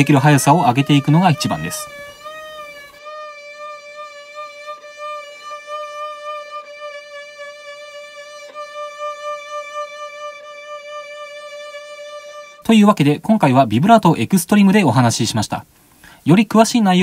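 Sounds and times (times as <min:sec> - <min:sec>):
violin bowed note with vibrato: 0:00.0 - 0:12.7.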